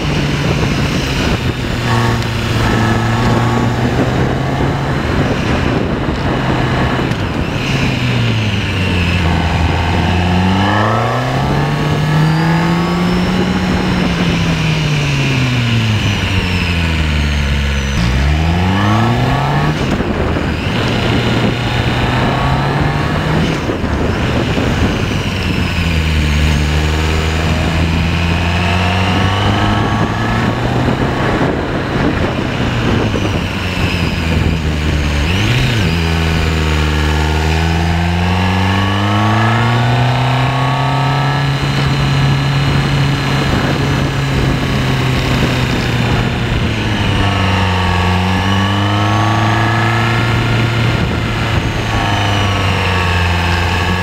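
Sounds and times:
wind rush: 0.0 - 17.1, 18.0 - 54.0
motorcycle engine accelerating: 0.0 - 54.0.

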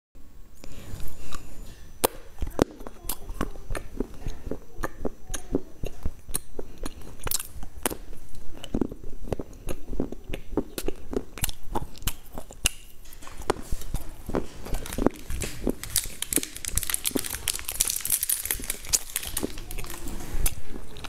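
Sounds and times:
chewing mouth sounds: 2.4 - 21.0
crisp snack crunching: 5.8 - 21.0.

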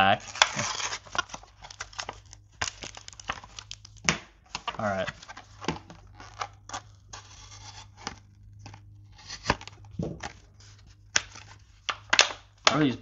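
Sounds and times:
plastic packaging tearing: 0.1 - 9.8.

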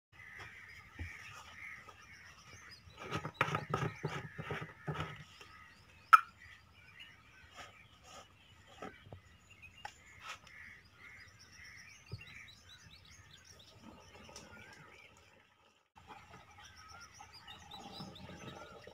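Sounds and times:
birds chirping: 0.2 - 18.9
plastic cans knocking and clattering: 3.0 - 5.3.

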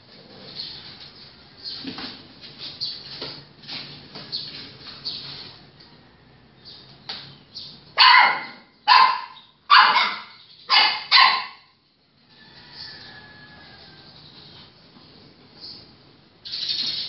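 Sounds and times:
dog barking: 8.0 - 11.7.

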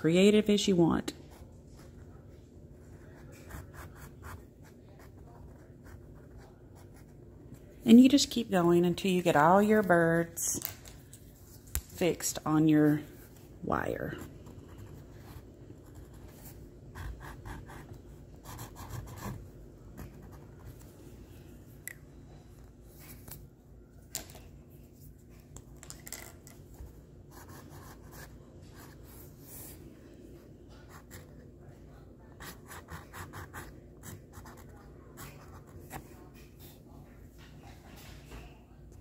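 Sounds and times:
low room hum: 0.0 - 39.0
marker scratching on canvas: 27.3 - 29.8.

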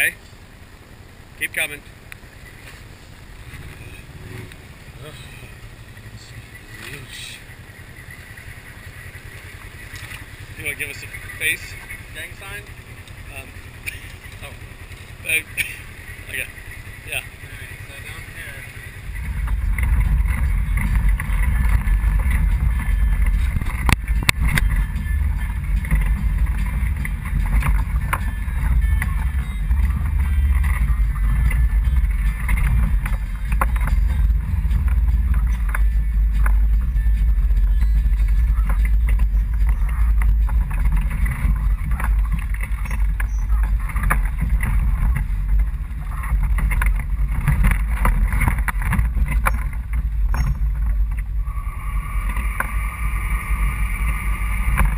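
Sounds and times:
engine rumbling on rocky trail: 0.0 - 54.9.

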